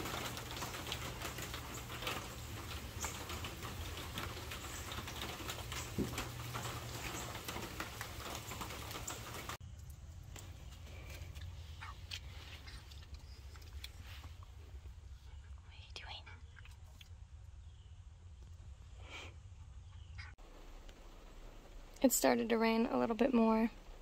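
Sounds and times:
rain pattering: 0.0 - 14.9, 20.4 - 24.0.

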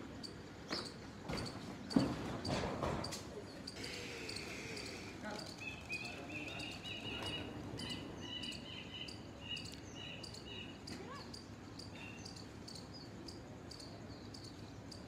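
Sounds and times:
high repeated chirping: 3.6 - 15.0.

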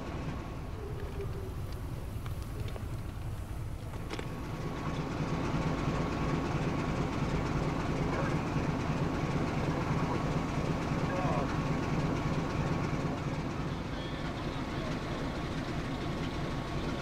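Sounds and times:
faint steady whine: 0.0 - 6.0
diesel locomotive engine rumble: 0.0 - 17.0.

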